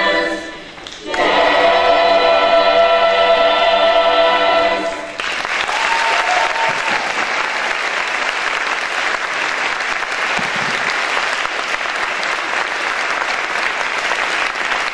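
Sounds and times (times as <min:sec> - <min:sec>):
audience applauding: 0:05.2 - 0:14.9.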